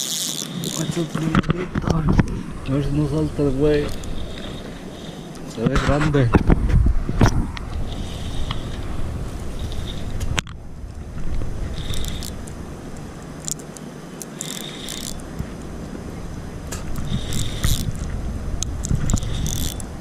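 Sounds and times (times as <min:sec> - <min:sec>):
fishing reel ratcheting: 0:00.0 - 0:01.4, 0:03.9 - 0:05.4, 0:07.9 - 0:08.8, 0:09.5 - 0:10.1, 0:11.7 - 0:15.4, 0:17.0 - 0:19.9.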